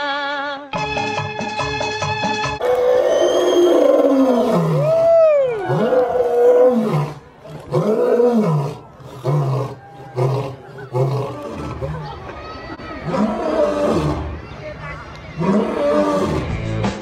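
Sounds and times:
lion roaring: 2.6s - 12.1s, 13.0s - 14.3s, 15.4s - 16.6s.

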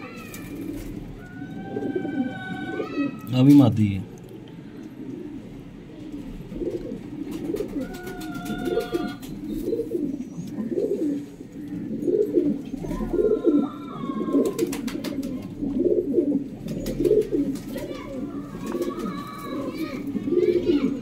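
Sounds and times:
pigeons cooing: 0.0s - 21.0s.

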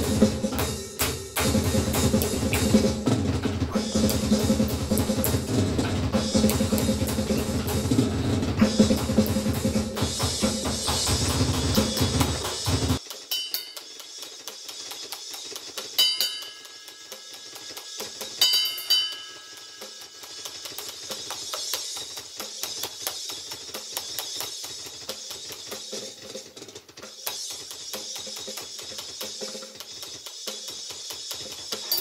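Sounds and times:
fast dense drumming: 0.0s - 13.2s
metal music: 0.0s - 14.2s
ringing cymbal accents: 13.0s - 14.3s, 15.8s - 22.1s, 31.8s - 32.0s.

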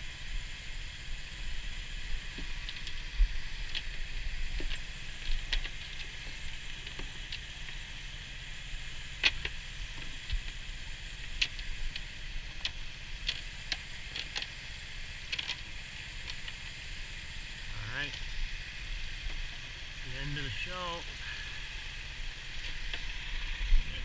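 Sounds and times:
small splashes and ticks: 2.1s - 17.0s.

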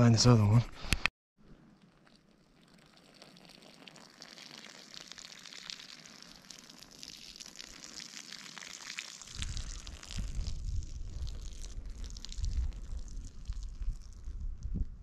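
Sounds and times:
urine stream spattering on grass: 1.9s - 14.4s
microphone rumble: 9.3s - 15.0s.

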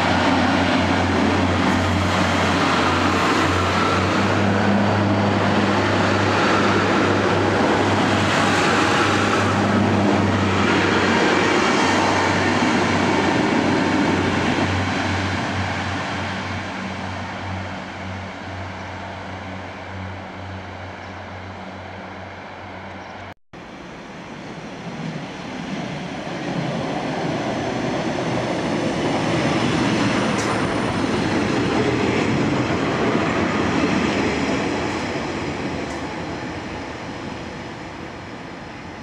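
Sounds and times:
diesel train rumble: 0.0s - 39.0s.

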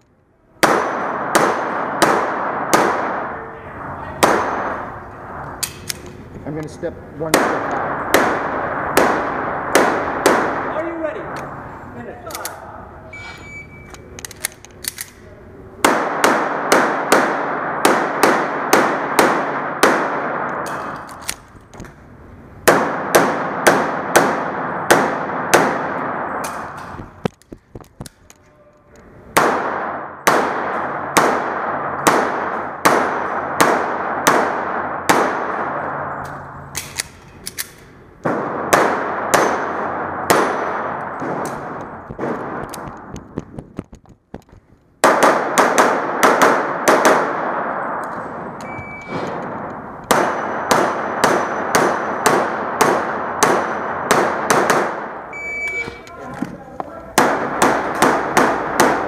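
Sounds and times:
pistol shots echoing indoors: 0.6s - 3.6s, 4.2s - 6.0s, 7.2s - 11.6s, 15.8s - 21.4s, 22.6s - 27.0s, 29.3s - 43.0s, 45.0s - 56.1s, 57.1s - 59.0s.

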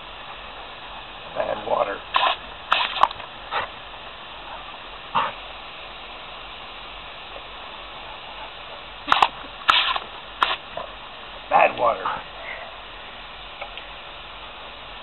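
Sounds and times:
steady hiss: 0.0s - 15.0s
dog barking: 4.4s - 5.4s.

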